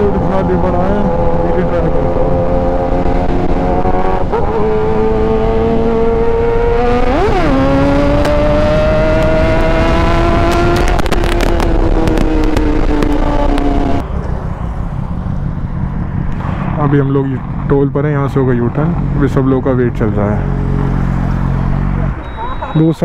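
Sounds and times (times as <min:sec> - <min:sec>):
motorcycle engine revving: 0:00.0 - 0:22.8
exhaust crackles: 0:02.9 - 0:22.7
wind rush on microphone: 0:07.3 - 0:14.0.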